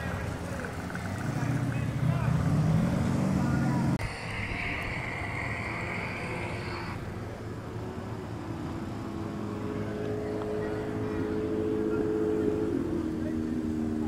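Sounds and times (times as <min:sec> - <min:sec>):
vehicle engine running: 0:00.0 - 0:14.0.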